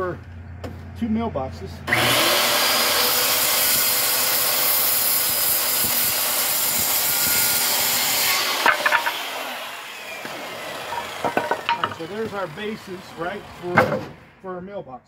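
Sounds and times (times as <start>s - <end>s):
circular saw cutting wood: 1.9s - 14.2s
knocks: 8.6s - 9.2s, 10.9s - 12.0s.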